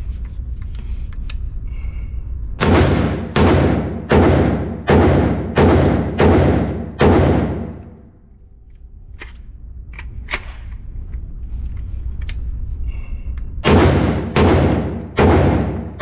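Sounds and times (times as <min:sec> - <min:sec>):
rifle shots with ringing echo: 0:02.6 - 0:08.0, 0:13.6 - 0:16.0.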